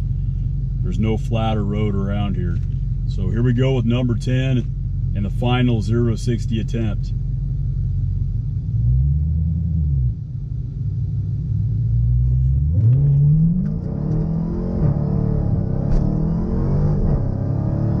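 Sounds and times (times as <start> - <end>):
car engine revving and accelerating: 11.6 - 18.0.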